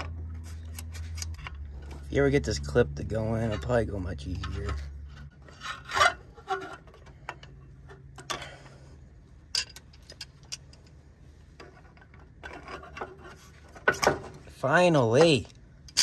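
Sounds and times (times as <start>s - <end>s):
pliers scraping metal fitting: 0.4s - 2.0s.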